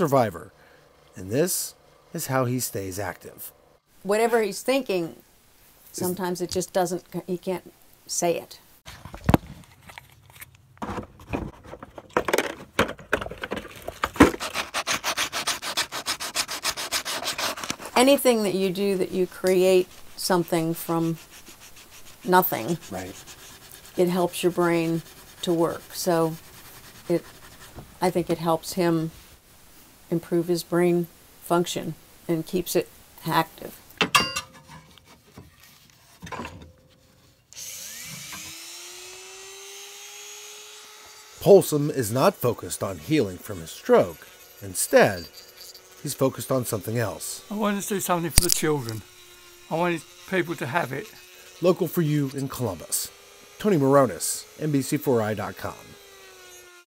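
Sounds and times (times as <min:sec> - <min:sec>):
wood knocking: 0:10.8 - 0:14.4
sandpaper rubbing wood: 0:14.1 - 0:28.4, 0:42.1 - 0:56.8
rotary tool motor whine: 0:37.5 - 0:41.5, 0:43.1 - 0:56.9.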